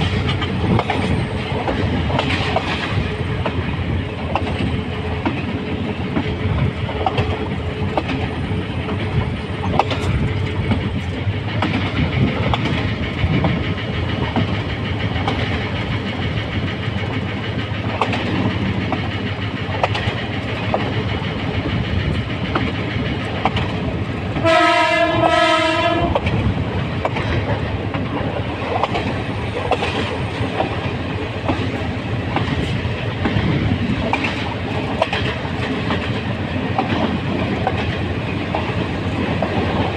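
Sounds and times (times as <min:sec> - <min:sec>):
diesel locomotive rumbling: 0:00.0 - 0:39.9
locomotive horn blasts: 0:24.4 - 0:26.2.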